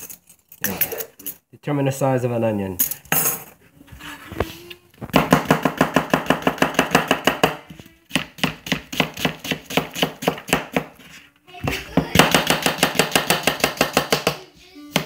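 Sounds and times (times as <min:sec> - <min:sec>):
knife chopping on plastic board: 0:05.1 - 0:15.0.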